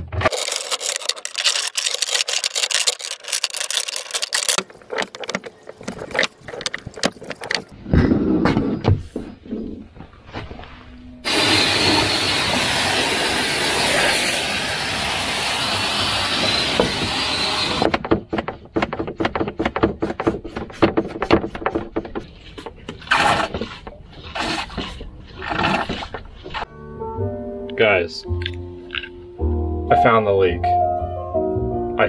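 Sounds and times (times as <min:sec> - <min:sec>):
anchor chain links clinking: 0:00.2 - 0:07.8
loud rushing hiss: 0:11.3 - 0:17.8.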